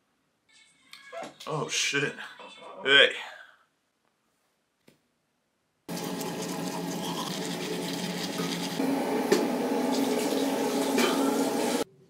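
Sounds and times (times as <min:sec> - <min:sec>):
water running: 0:05.9 - 0:11.9.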